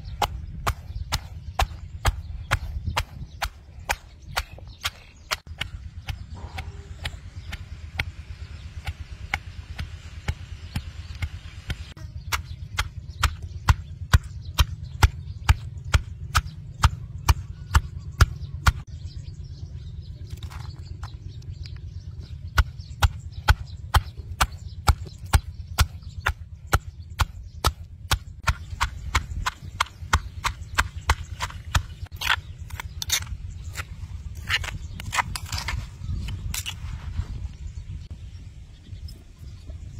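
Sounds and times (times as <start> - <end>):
stone pestle pounding in mortar: 22.6 - 33.9.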